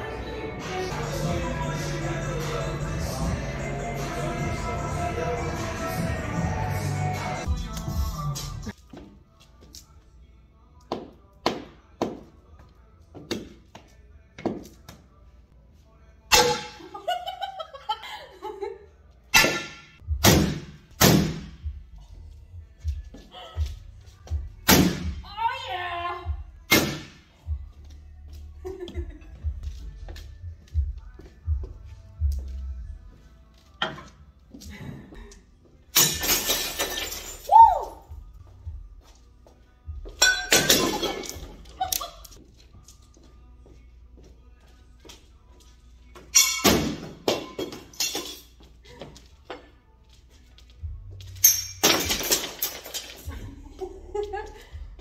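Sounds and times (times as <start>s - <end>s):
ceramic dishes shattering: 35.9s - 37.5s, 40.2s - 41.5s, 46.3s - 48.6s, 51.4s - 53.2s
hammer blows smashing objects: 36.0s - 37.5s.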